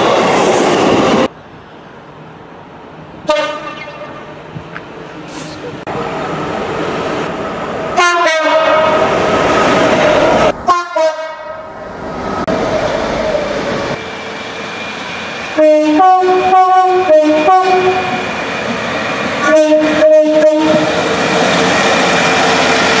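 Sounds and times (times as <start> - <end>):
train rumbling past: 0.0 - 23.0
two-tone train horn: 3.3 - 4.3, 8.0 - 9.0, 10.6 - 11.7, 15.6 - 18.2, 19.4 - 20.9.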